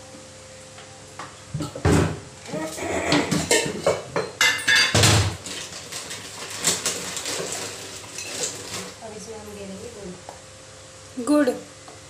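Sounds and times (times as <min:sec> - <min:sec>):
steel containers and utensils clattering: 0:01.6 - 0:09.0.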